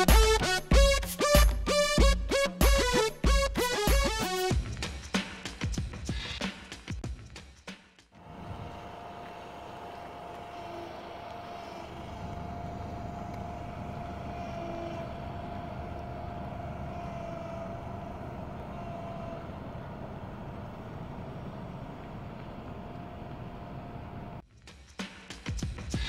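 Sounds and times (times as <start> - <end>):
diesel truck engine running: 8.2 - 24.4.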